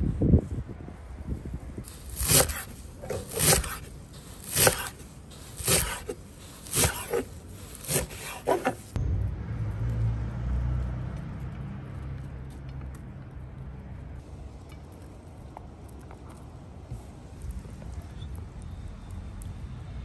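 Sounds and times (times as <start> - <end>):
knife chopping on wooden board: 2.0 - 5.0, 5.6 - 8.9.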